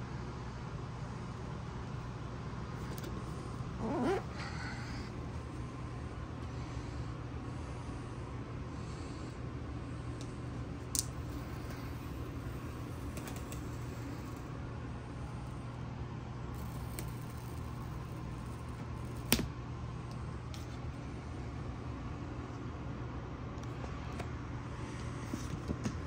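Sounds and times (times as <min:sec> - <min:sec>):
low background hum: 0:00.0 - 0:26.0.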